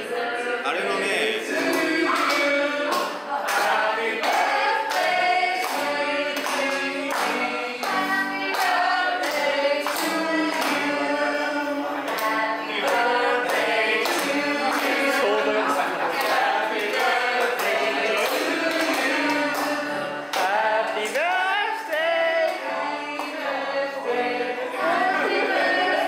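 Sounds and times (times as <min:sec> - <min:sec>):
group singing in unison: 0:00.0 - 0:26.0
hands clapping on a beat: 0:01.5 - 0:23.5.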